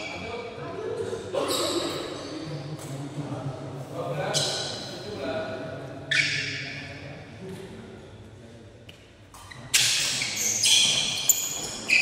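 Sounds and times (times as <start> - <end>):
shoes squeaking on floor: 6.1 - 6.8, 9.3 - 12.0.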